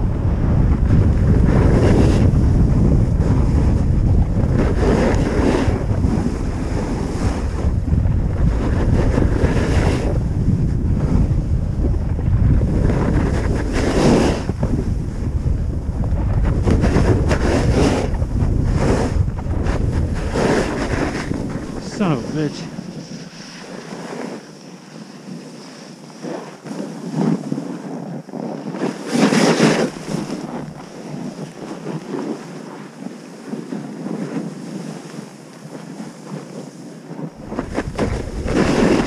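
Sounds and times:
wind buffeting microphone: 0.0 - 34.8, 37.0 - 39.0
ski edges scraping snow: 4.6 - 7.6, 12.8 - 14.5, 16.7 - 39.0.

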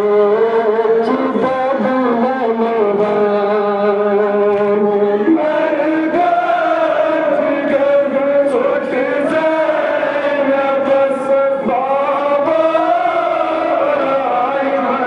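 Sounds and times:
men chanting over loudspeakers: 0.0 - 15.0.

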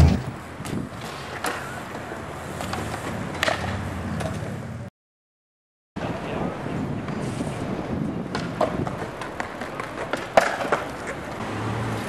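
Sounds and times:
bike tyres rolling on concrete: 0.0 - 4.9, 6.1 - 12.0
sharp clacks and knocks from bike: 8.3 - 11.4.

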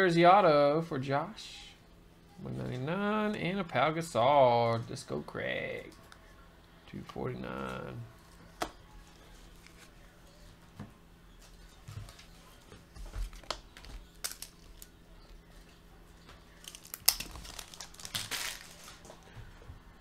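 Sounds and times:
paper and cards rustling: 7.6 - 10.7, 11.4 - 19.3
crinkling rustle: 16.5 - 19.3.

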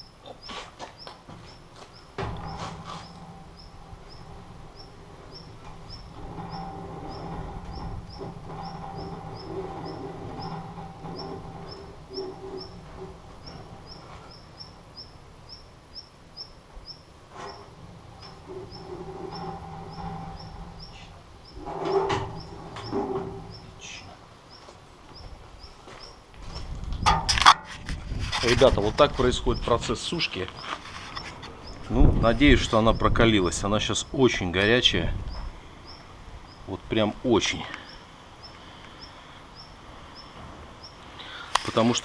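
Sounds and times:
bird chirping: 0.0 - 26.6, 29.2 - 41.9
steady low hum: 0.0 - 27.3
metal clank and rattle: 1.2 - 15.3, 17.3 - 24.0, 27.0 - 33.6.

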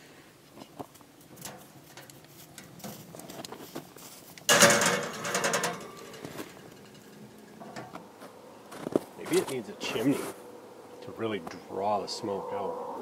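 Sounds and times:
metal pan scraping on grate: 4.5 - 8.0.

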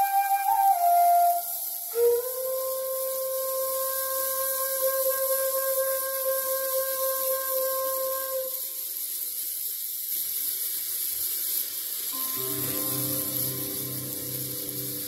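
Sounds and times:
instrumental music: 0.0 - 8.6, 12.2 - 15.0
steady hiss: 0.0 - 15.0.

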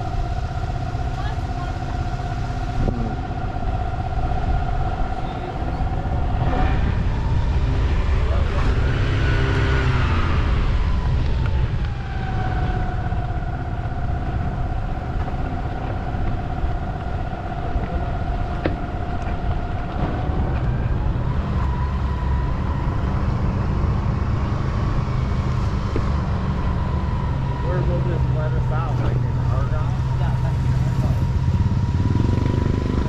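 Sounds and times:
wind rumble on microphone: 0.0 - 27.6
vehicle engine running: 0.0 - 33.0.

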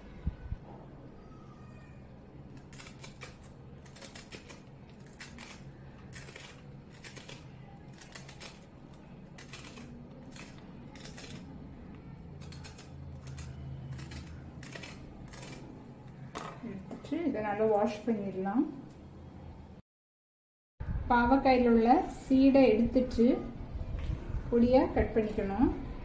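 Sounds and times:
knife scraping vegetable skin: 2.5 - 15.8.

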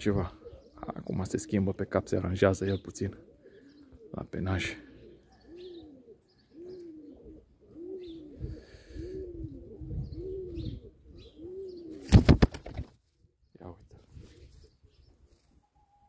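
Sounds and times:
pigeon cooing: 0.0 - 12.1
pigeon flapping wings: 12.0 - 13.0.

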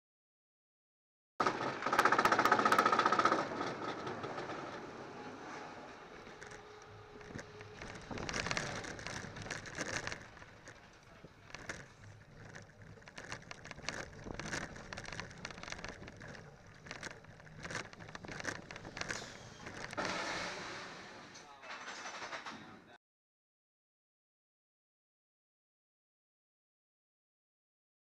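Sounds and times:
sharp clacks: 1.4 - 4.8
coaster wheels rattling on steel track: 1.4 - 22.8.

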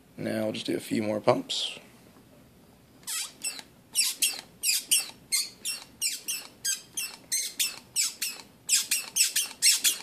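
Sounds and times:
hand vacuum pump squeaking: 3.0 - 10.0.

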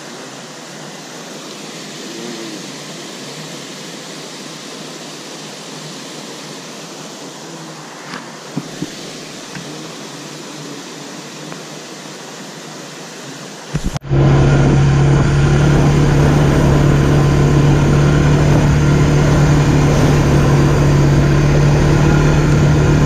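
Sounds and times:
stream water running: 0.0 - 23.0
atv engine running: 13.8 - 23.0.

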